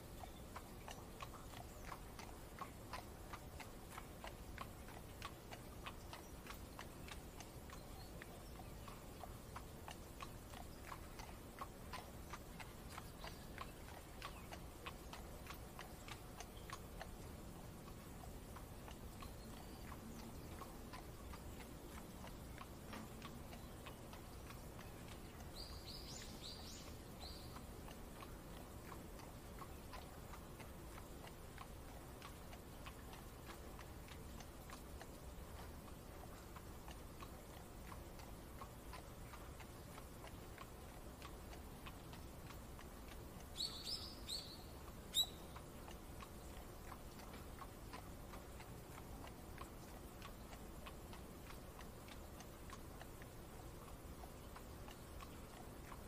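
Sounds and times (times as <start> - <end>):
hooves clip-clopping: 0.0 - 56.0
low steady hiss: 0.0 - 56.0
bird chirps: 6.0 - 9.1, 19.2 - 20.6, 23.5 - 27.6, 43.6 - 45.6.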